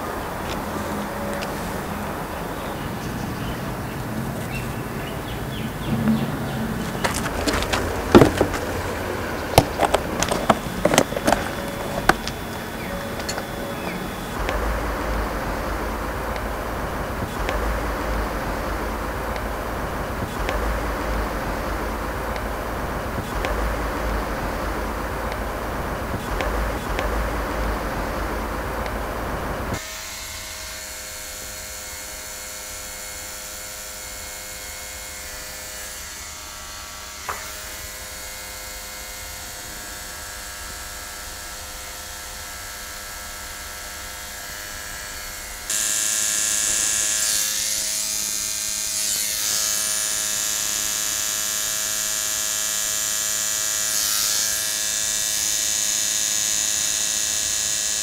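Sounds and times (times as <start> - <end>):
hum of held tones: 0.0 - 29.8.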